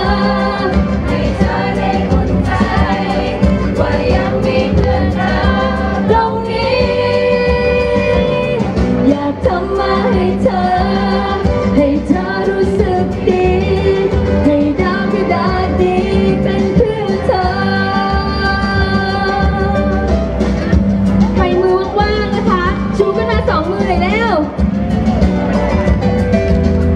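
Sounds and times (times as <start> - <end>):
woman singing into a microphone: 0.0 - 20.2
pop accompaniment: 0.0 - 26.9.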